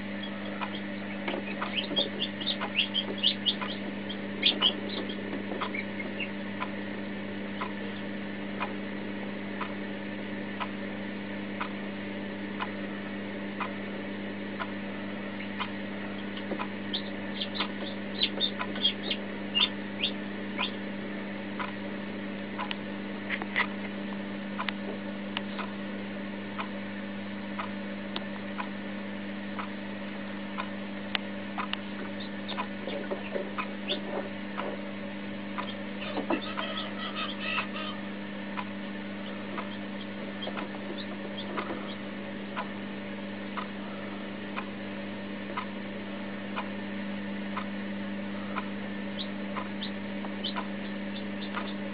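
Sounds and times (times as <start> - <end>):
chick peeping: 0.0 - 8.8, 13.5 - 13.9, 14.6 - 20.9, 22.6 - 23.9, 31.6 - 34.8, 35.5 - 42.8, 43.4 - 44.8, 48.3 - 51.9
steady hum: 0.0 - 51.9
soft regular ticking: 0.2 - 6.9, 35.6 - 35.8, 38.5 - 42.0.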